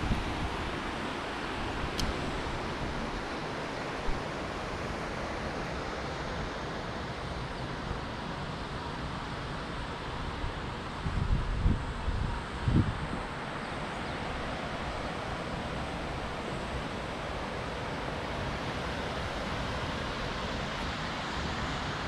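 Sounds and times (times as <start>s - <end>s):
sharp tick: 2.0s - 2.2s.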